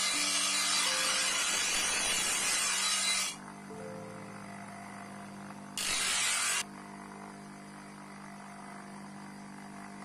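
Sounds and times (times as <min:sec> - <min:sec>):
blade grinding on sanding disc: 0:00.0 - 0:03.4, 0:05.8 - 0:06.6
grinder motor humming: 0:00.0 - 0:10.0.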